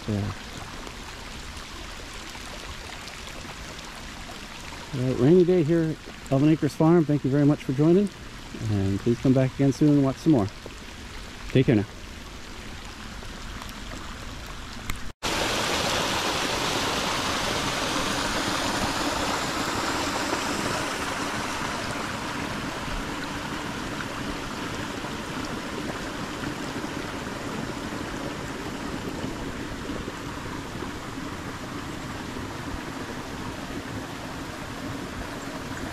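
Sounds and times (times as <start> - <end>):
stream of water rushing over grass: 0.0 - 35.9.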